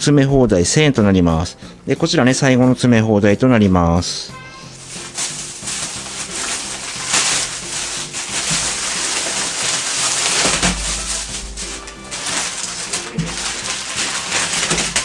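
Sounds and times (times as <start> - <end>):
plastic bag rustling: 4.4 - 15.0
packets sliding onto wooden floor: 4.8 - 15.0.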